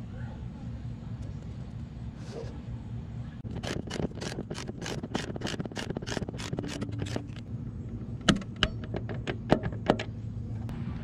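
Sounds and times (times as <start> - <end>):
ratchet wrench clicking: 3.5 - 7.5.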